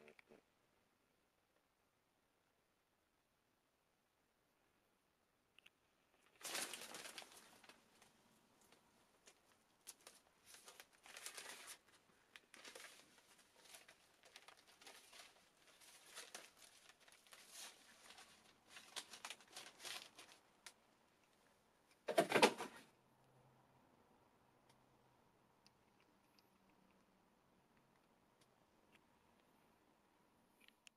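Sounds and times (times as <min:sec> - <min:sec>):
softbox cloth rustling and crinkling: 0:06.2 - 0:21.5.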